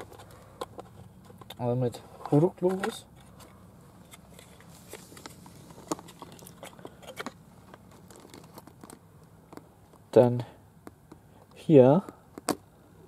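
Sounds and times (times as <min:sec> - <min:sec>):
light rustling: 0:00.0 - 0:10.1
steady low hum: 0:00.0 - 0:13.0
small items clicking: 0:04.1 - 0:10.0.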